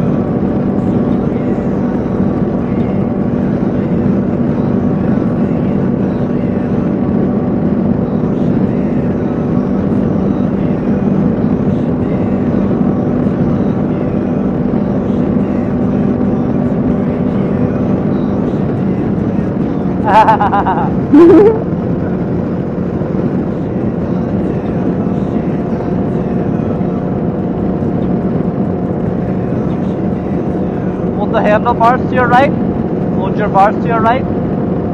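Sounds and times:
motorcycle engine cruising: 0.0s - 34.9s
wind rush on microphone: 0.0s - 34.9s.

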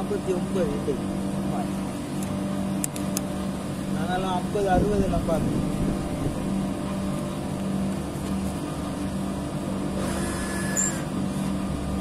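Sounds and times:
air conditioning unit humming: 0.0s - 12.0s.

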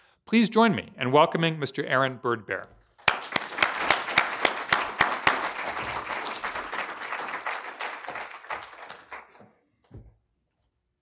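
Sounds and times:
audience applauding: 3.0s - 9.5s.

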